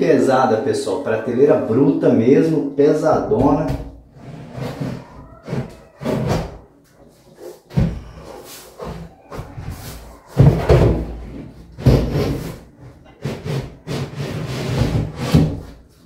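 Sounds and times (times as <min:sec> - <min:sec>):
board rubbing against cabinet: 0:03.3 - 0:16.0.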